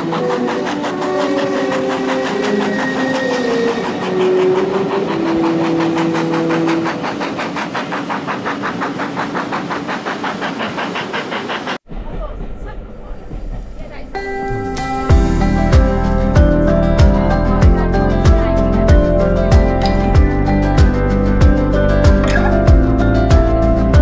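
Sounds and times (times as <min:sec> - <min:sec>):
steam locomotive chuffing: 0:00.0 - 0:24.0.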